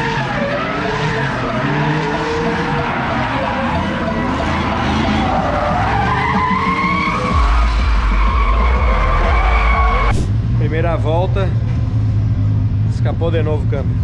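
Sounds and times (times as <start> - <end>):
tyres screeching: 0.0 - 10.2
car engines revving high: 0.0 - 14.0
deep rumble: 7.3 - 14.0.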